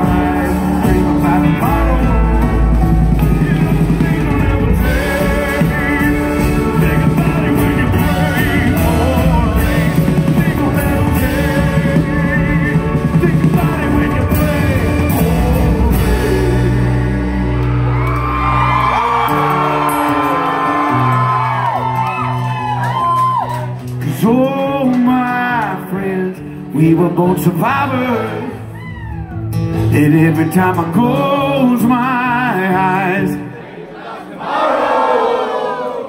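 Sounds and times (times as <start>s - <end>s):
held bass notes: 0.0s - 21.8s
drums: 0.0s - 33.5s
live country band playing: 0.0s - 33.7s.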